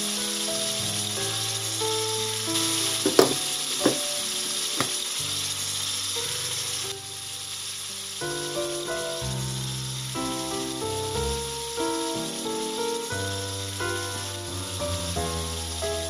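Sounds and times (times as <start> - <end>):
vegetables sizzling in a pan: 0.0 - 16.0
glass lid clinks: 3.1 - 4.2.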